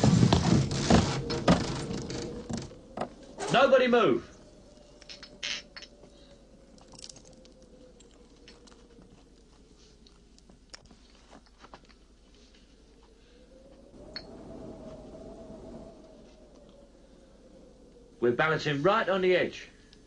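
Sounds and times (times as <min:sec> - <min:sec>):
creaks and clicks: 0:00.0 - 0:03.6, 0:04.7 - 0:13.2.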